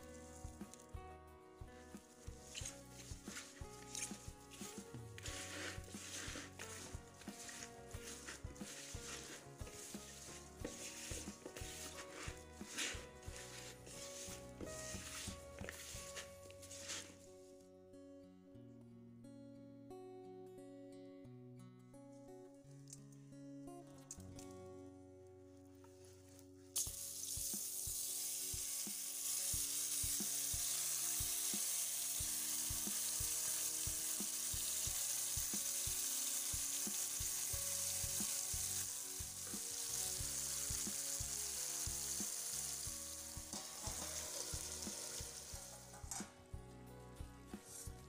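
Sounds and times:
potatoes sizzling in oil: 0.0s - 1.0s, 1.7s - 17.2s, 26.8s - 46.3s.

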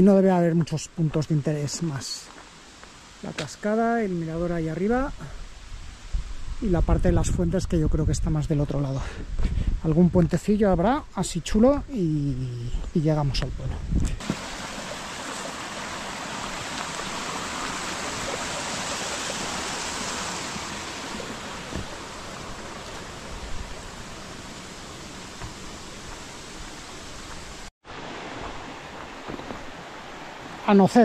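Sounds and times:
mountain stream rushing: 14.2s - 31.0s.

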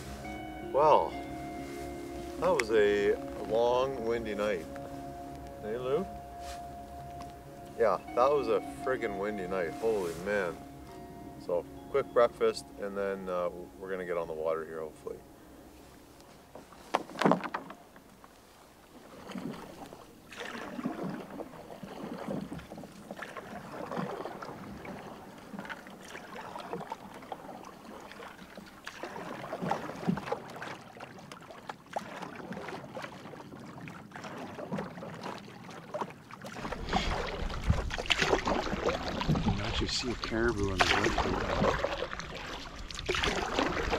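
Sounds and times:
canoe paddle strokes in water: 0.0s - 43.9s
wind buffeting microphone: 36.6s - 43.9s.

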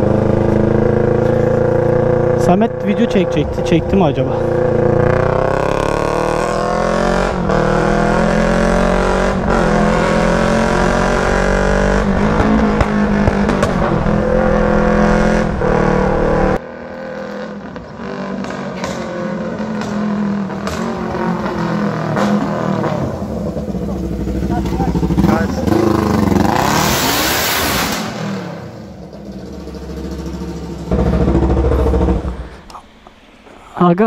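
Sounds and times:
loud raspy motorcycle engine: 0.0s - 27.2s, 28.4s - 32.7s
exhaust pops: 12.1s - 14.4s.

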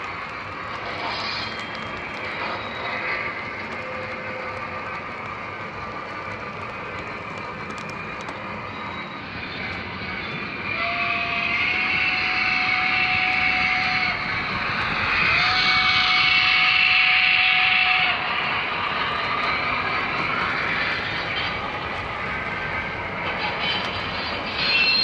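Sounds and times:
model train running on track: 0.0s - 25.0s
steam whistle blasts: 10.7s - 14.2s.

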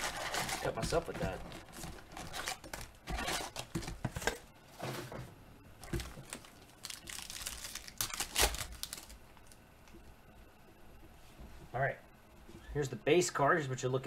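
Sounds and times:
plastic wrapper tearing: 0.0s - 3.8s, 5.8s - 9.6s
plastic wrapper crinkling: 0.0s - 3.9s, 5.8s - 9.6s.

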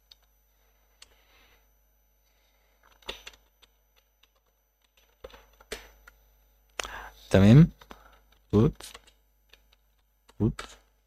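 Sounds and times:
computer keyboard keystrokes: 2.8s - 6.2s, 7.8s - 10.8s.

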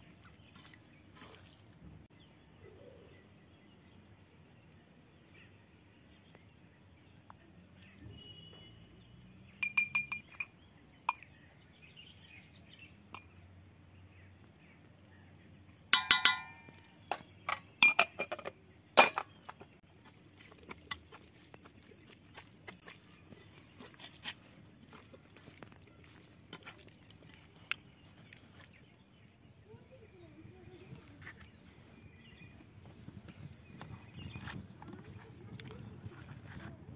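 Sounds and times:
metallic clinks on a metal plate: 9.6s - 10.5s, 16.0s - 19.4s.

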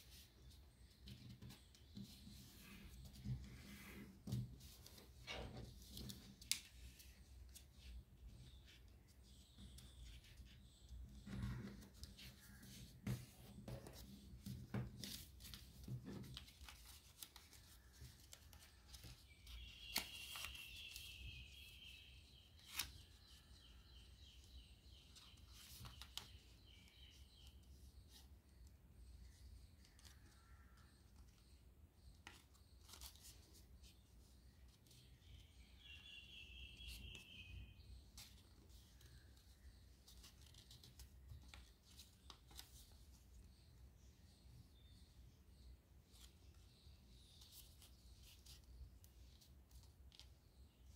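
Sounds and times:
paper rustling: 0.0s - 24.2s, 25.0s - 26.5s, 32.2s - 34.0s, 37.9s - 43.6s
crisp paper clicks: 16.2s - 21.1s, 22.6s - 23.1s.

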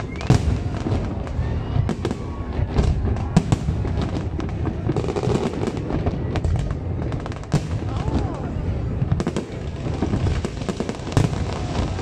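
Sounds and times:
fireworks bangs: 0.0s - 12.0s.

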